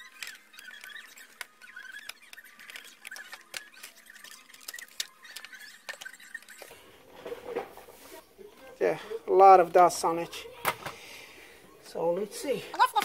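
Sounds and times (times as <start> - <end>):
faint thin squeaks: 0.0 - 8.6.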